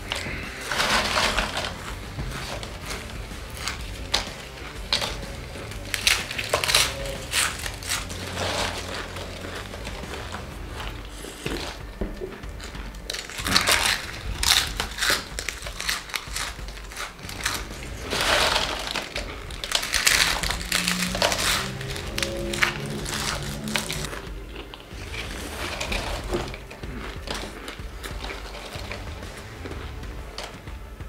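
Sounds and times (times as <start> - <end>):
chips crunching and chewing: 0.0 - 31.0.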